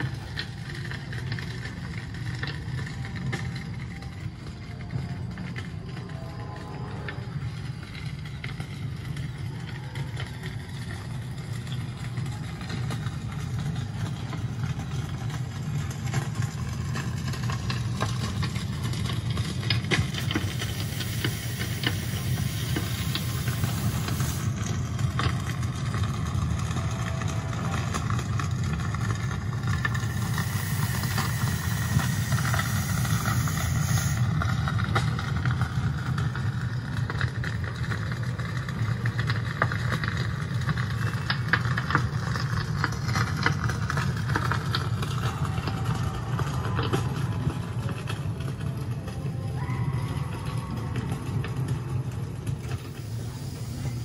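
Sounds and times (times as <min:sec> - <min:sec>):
hissing noise: 0:19.9 - 0:24.8, 0:29.7 - 0:34.5, 0:52.8 - 0:54.0.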